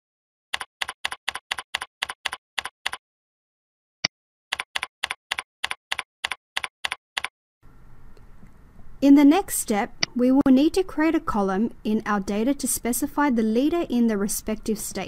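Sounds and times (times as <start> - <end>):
keyboard typing: 0.6 - 3.0, 4.5 - 7.3.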